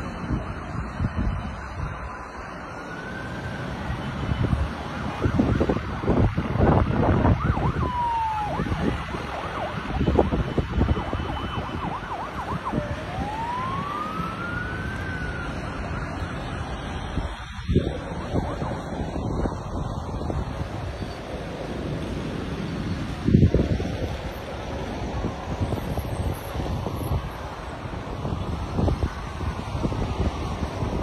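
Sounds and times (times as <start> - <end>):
wind gusting over microphone: 0.0 - 31.0
siren wailing: 0.1 - 21.1.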